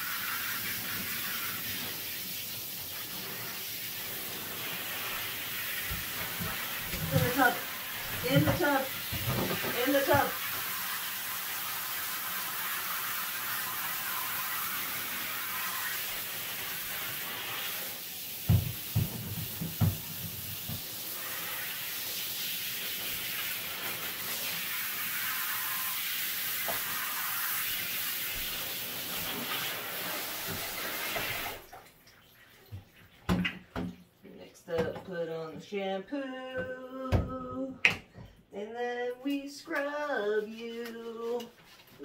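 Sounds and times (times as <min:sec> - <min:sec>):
shower spraying water: 0:00.0 - 0:33.1.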